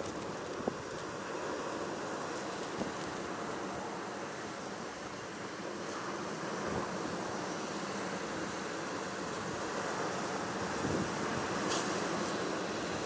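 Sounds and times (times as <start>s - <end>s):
wind: 0.0s - 13.0s
sea surf rushing: 1.1s - 13.0s.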